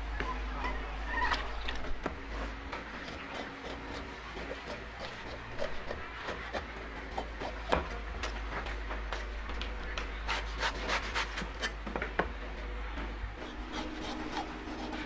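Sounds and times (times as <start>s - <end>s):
cleaver scraping coconut husk: 1.4s - 8.4s, 10.2s - 11.8s, 13.4s - 15.0s.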